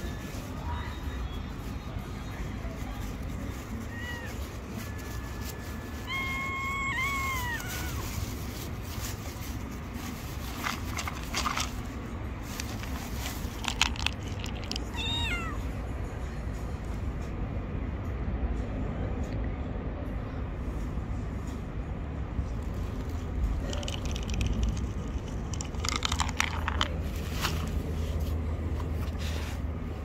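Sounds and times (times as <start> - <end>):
low rumble of traffic: 0.0 - 30.0
cat meowing: 3.8 - 8.2, 14.8 - 15.8.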